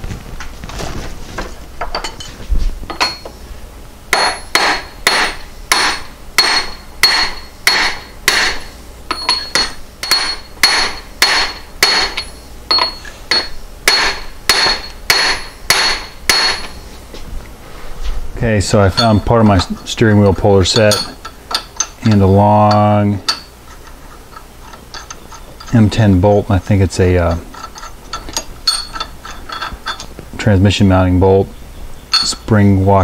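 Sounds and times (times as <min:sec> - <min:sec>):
hammer striking steel: 0:04.1 - 0:16.8, 0:18.7 - 0:23.5.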